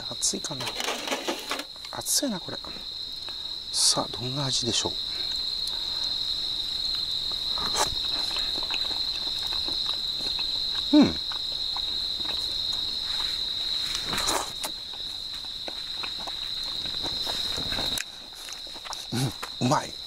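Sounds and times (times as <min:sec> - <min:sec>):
crickets chirring: 0:00.0 - 0:20.0
person eating soup and noodles: 0:00.6 - 0:01.7, 0:07.6 - 0:19.6.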